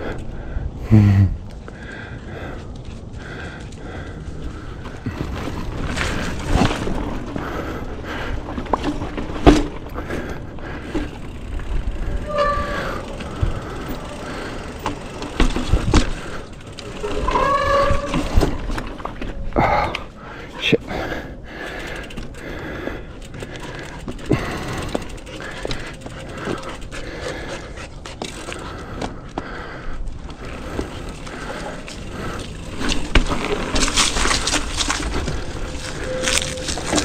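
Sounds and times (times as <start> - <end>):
bicycle rattling over rough ground: 0.0 - 37.0
short squeals: 12.0 - 15.2, 16.8 - 18.7, 35.3 - 37.0.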